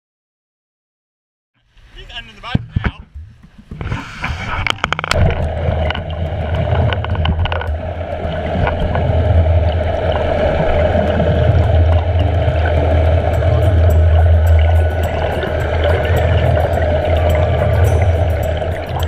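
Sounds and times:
churning wake water: 0:01.7 - 0:19.0
splashes and knocks: 0:02.5 - 0:19.0
underwater boat engine drone: 0:04.3 - 0:19.0.

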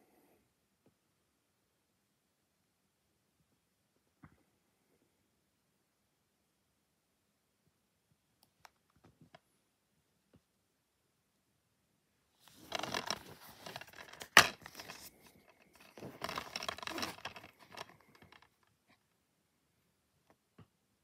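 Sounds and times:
plastic case scraping and rattling: 0:12.4 - 0:18.6
plastic case snapping open: 0:12.7 - 0:15.1.

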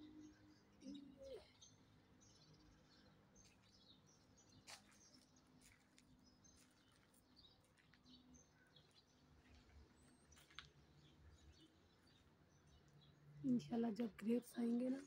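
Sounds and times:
faint bird chirps: 0:00.0 - 0:05.2.

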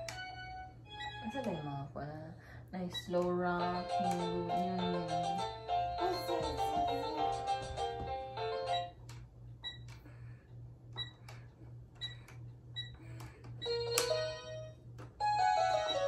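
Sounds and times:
toy keyboard beeps and notes: 0:00.0 - 0:01.8, 0:02.9 - 0:04.9, 0:08.6 - 0:09.0, 0:09.6 - 0:10.0, 0:11.0 - 0:11.3, 0:12.0 - 0:16.0
toy keyboard tune: 0:00.0 - 0:01.9, 0:02.8 - 0:09.0, 0:12.0 - 0:16.0.

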